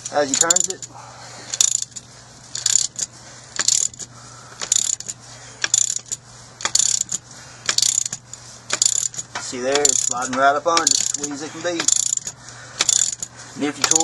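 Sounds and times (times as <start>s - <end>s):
ratchet wrench clicking: 0.0s - 0.9s, 1.5s - 14.0s.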